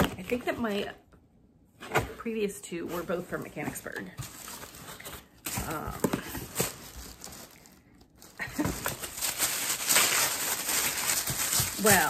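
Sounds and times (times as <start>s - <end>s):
wrapping paper crinkling: 4.2s - 12.0s.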